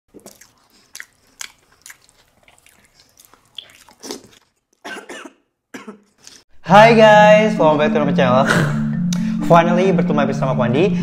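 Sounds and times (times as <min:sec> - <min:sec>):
breathy mouth sounds: 0:00.1 - 0:04.5
wet chewing with lip smacks: 0:00.1 - 0:04.8.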